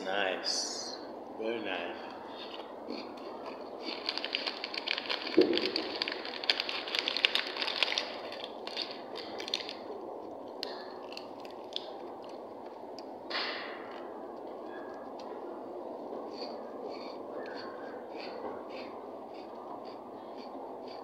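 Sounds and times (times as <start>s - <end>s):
plastic wrapper crinkling: 2.4s - 12.8s.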